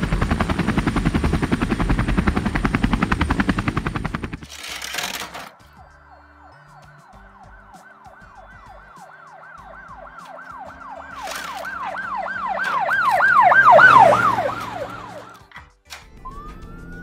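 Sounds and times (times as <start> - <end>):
plastic toys clicking: 4.4 - 5.6
electronic siren wailing: 5.5 - 15.5, 16.2 - 17.0.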